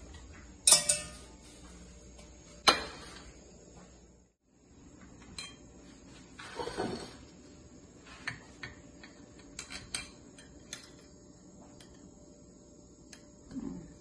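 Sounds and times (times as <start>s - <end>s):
metal kitchenware clinking: 0.6s - 1.3s.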